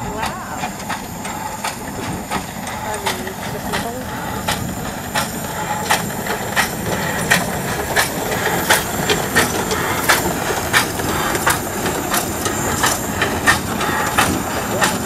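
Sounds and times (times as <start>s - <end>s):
steam hissing: 0.0s - 15.0s
steam locomotive beat: 0.0s - 15.0s.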